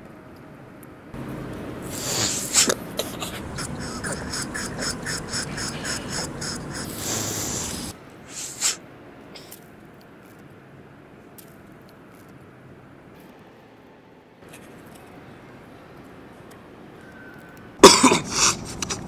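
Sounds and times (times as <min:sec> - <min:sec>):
loud sharp nose snort: 0:01.8 - 0:08.8
person sniffing: 0:01.8 - 0:08.8, 0:18.2 - 0:19.0.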